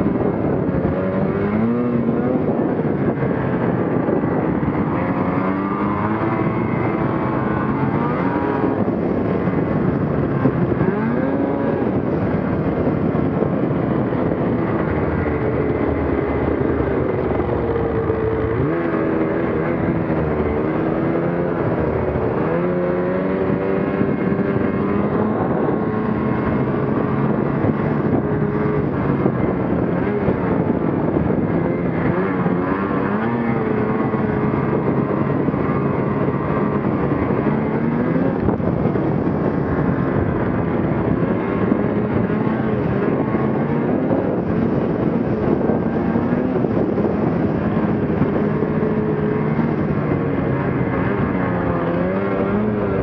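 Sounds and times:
snowmobile engine revving: 0:00.0 - 0:53.0.

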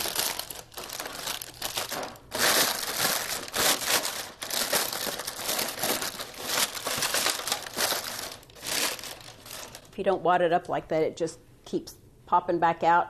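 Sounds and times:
paper crumpling: 0:00.0 - 0:10.0.

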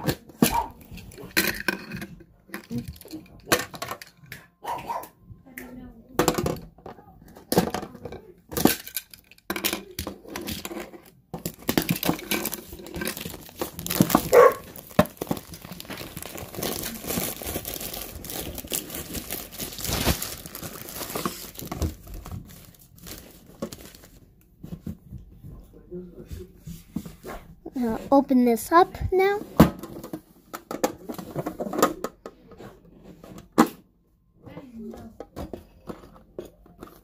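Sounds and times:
plastic wrap crinkling and tearing: 0:11.4 - 0:24.3.

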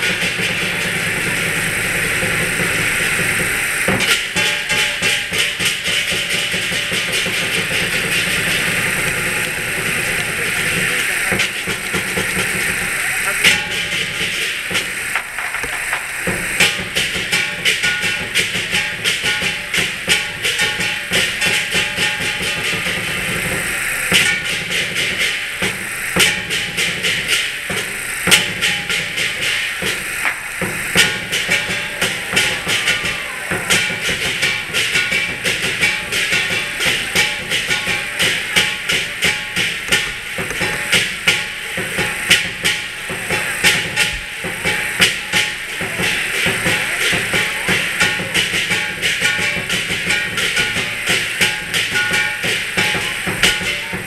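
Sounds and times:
cymbals clashing: 0:00.0 - 0:54.0
drum beating: 0:00.0 - 0:54.0.

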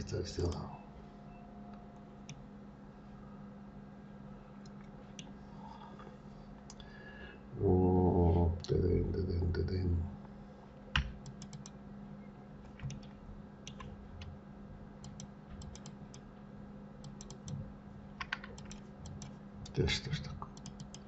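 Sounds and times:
man humming: 0:07.6 - 0:09.4
keyboard and mouse clicks: 0:11.0 - 0:11.8, 0:12.7 - 0:14.3, 0:15.0 - 0:16.2, 0:17.0 - 0:17.6, 0:18.2 - 0:19.8, 0:20.4 - 0:21.0.

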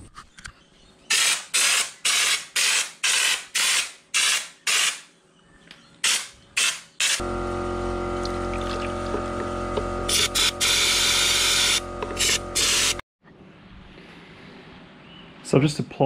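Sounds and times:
spray gun hissing: 0:09.4 - 0:13.0.

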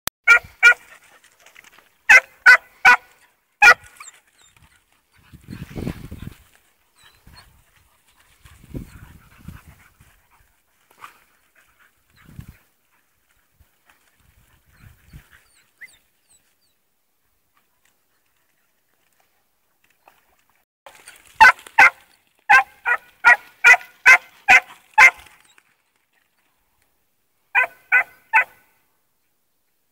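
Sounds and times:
dog barking: 0:00.3 - 0:00.8, 0:02.1 - 0:03.9, 0:21.4 - 0:25.2, 0:27.6 - 0:28.6.

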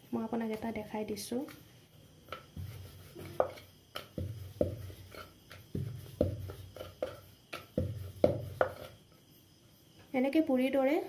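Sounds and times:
rolling pin rumbling on dough: 0:02.2 - 0:09.0
rolling pin knocking on board: 0:02.3 - 0:08.9.

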